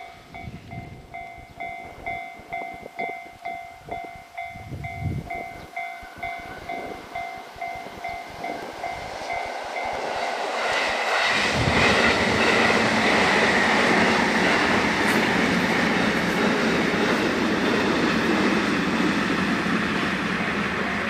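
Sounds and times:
level crossing bell ringing: 0.0s - 10.0s
electric train passing: 0.0s - 21.0s.

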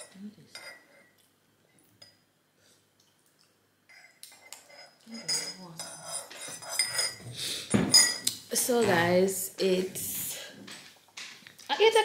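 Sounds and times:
cutlery and dishes clinking: 0.0s - 1.2s, 3.9s - 9.1s.

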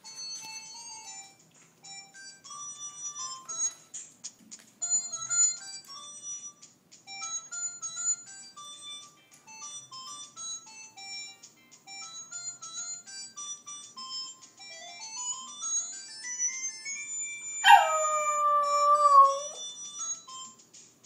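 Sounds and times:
phone ringtone melody: 0.0s - 3.8s, 4.8s - 20.5s
dog howling: 17.6s - 19.6s.

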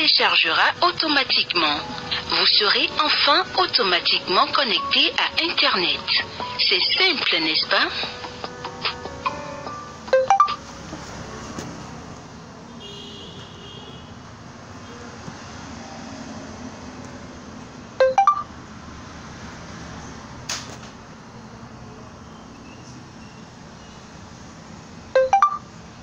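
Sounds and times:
phone notification chime: 10.1s - 10.6s, 18.0s - 18.5s, 25.2s - 25.6s.

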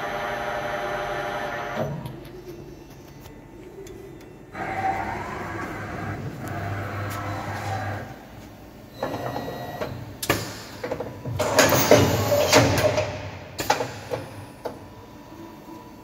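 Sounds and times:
machine whirring and rattling: 0.0s - 15.0s
machine clunks: 9.0s - 14.8s.

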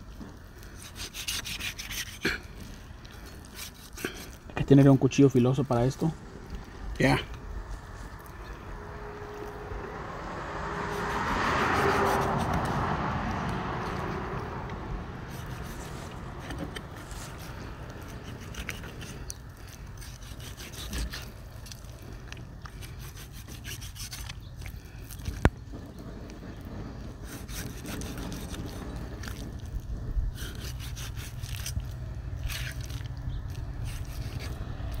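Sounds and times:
knife cutting and scraping meat: 0.0s - 4.9s, 10.7s - 12.9s, 15.2s - 25.6s, 27.1s - 35.0s
rushing noise: 6.1s - 18.5s.

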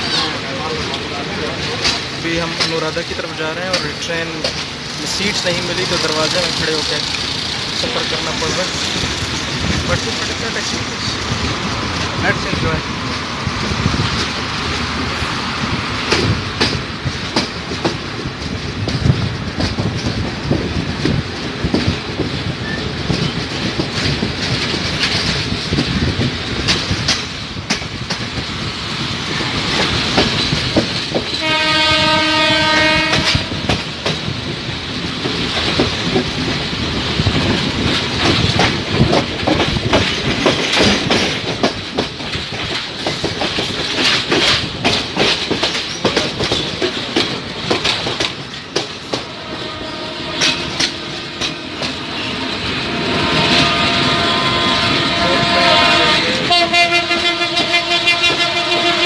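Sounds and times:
train rumbling: 0.0s - 59.0s
wheels clacking over rail joints: 0.0s - 59.0s
train horn: 31.3s - 33.7s, 49.2s - 59.0s.

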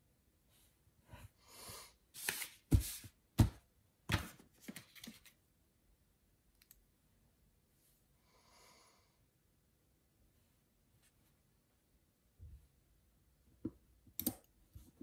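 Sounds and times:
paper rustling: 2.2s - 3.1s, 4.1s - 5.4s.

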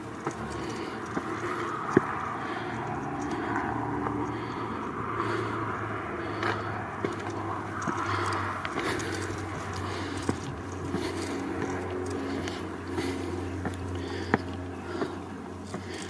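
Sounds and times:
footsteps on stone steps: 0.0s - 16.0s
low background rumble: 0.0s - 16.0s.

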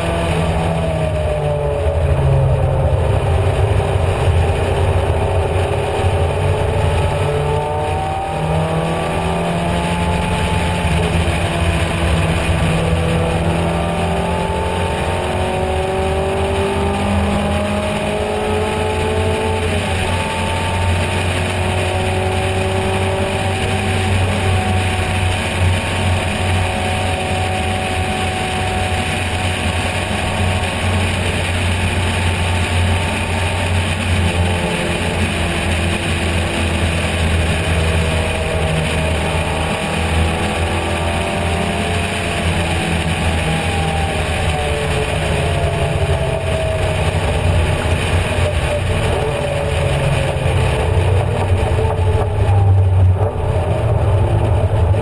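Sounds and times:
racing car engine revving: 0.0s - 55.0s
wind rush: 0.0s - 55.0s.

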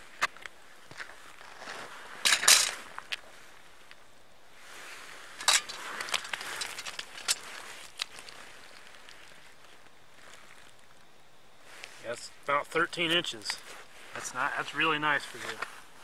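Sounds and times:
jacket rustle: 4.7s - 10.8s.

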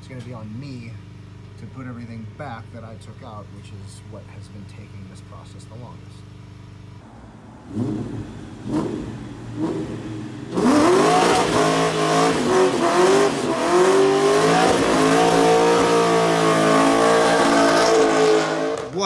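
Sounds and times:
car engine revving: 6.9s - 19.0s.

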